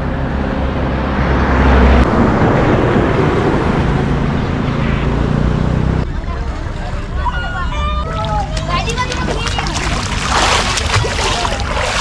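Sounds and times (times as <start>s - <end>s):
vehicle passing on road: 0.0s - 7.1s
low engine hum: 0.0s - 12.0s.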